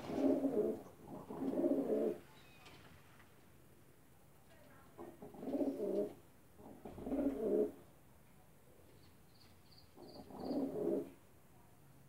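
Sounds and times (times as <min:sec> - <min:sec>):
pigeons cooing: 0:00.0 - 0:02.2, 0:05.2 - 0:07.8, 0:10.0 - 0:11.1.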